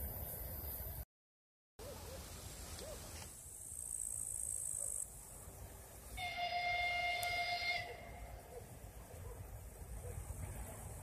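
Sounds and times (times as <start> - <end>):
train horn blast: 6.1 - 8.4.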